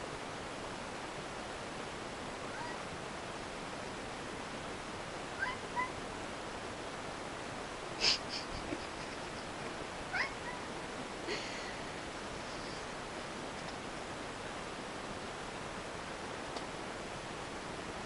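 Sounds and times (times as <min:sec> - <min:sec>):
steady hiss: 0:00.0 - 0:18.0
cat chirping: 0:02.5 - 0:02.8, 0:05.4 - 0:06.0, 0:10.1 - 0:10.7.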